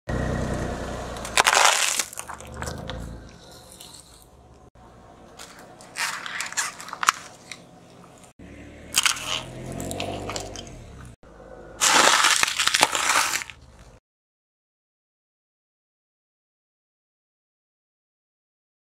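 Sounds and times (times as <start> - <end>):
plastic trays crunching under tyre: 1.1 - 4.2, 5.3 - 8.3, 8.9 - 11.2, 11.8 - 14.0
crackers packet crunching: 1.2 - 4.3, 5.4 - 8.3, 11.8 - 14.0
plastic straws crackling: 5.4 - 8.3, 11.8 - 14.0.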